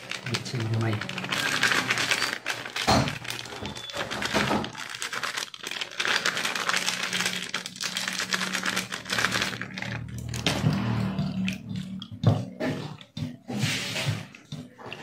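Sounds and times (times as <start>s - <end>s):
plastic sachet crinkling: 0.0s - 10.5s.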